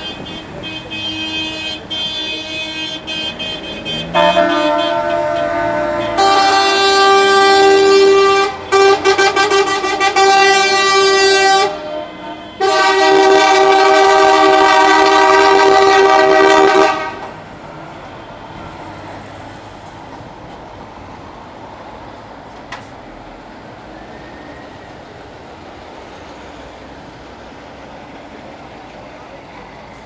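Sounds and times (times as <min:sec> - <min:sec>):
truck air horn blasts: 0:00.0 - 0:17.4
trucks driving past: 0:00.0 - 0:30.0.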